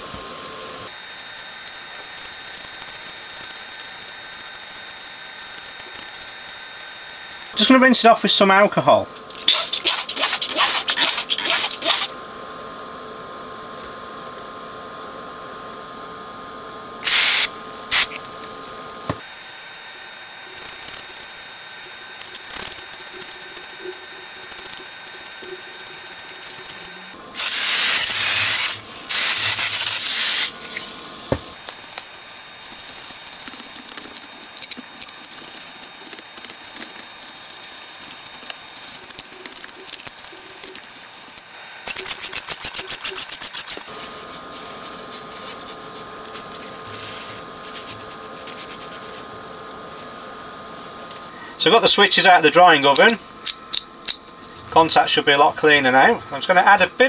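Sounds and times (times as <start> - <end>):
aerosol can spraying: 9.4 - 12.1, 17.0 - 18.2, 20.6 - 43.9
brush scrubbing circuit board: 9.4 - 12.1, 20.5 - 27.0, 32.6 - 43.9.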